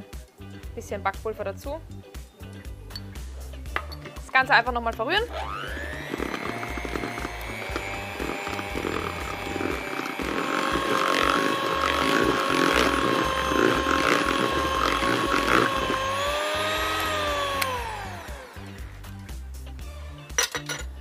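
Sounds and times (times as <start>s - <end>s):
electric hand mixer whining: 5.2s - 19.3s
beaters clattering in a bowl: 20.3s - 21.0s.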